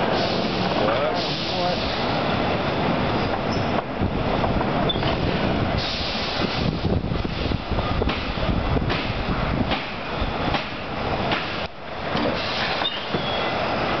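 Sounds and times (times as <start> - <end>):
roller coaster wheels rumbling and clacking: 0.0 - 14.0.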